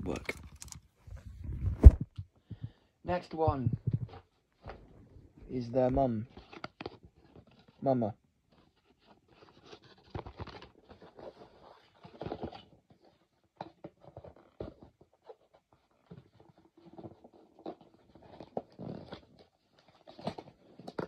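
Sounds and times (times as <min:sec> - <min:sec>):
handling taps scrapes and rustles: 0:00.0 - 0:02.7.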